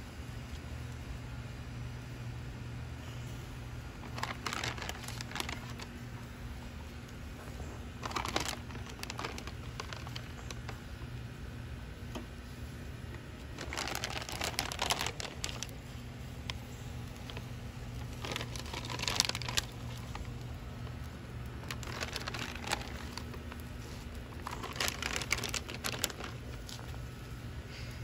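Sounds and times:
plastic bag crinkling: 4.0 - 6.3, 7.1 - 11.2, 13.2 - 27.3.

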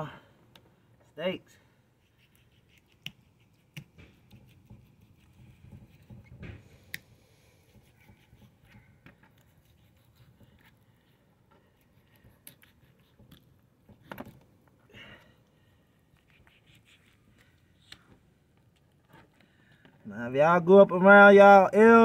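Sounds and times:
knife scraping: 2.0 - 6.4, 7.5 - 10.8, 16.2 - 17.9.

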